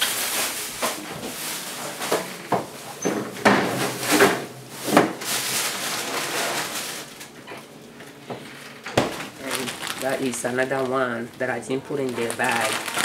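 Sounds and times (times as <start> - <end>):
kitchen rustles and knocks: 0.0 - 7.4, 8.2 - 9.4.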